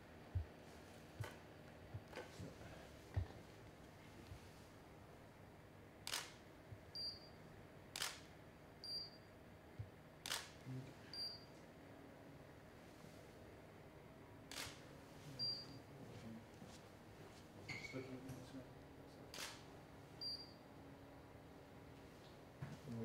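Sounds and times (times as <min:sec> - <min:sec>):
camera shutter firing: 0:06.0 - 0:06.4, 0:08.0 - 0:08.3, 0:10.2 - 0:10.6, 0:14.5 - 0:14.8, 0:19.3 - 0:19.6.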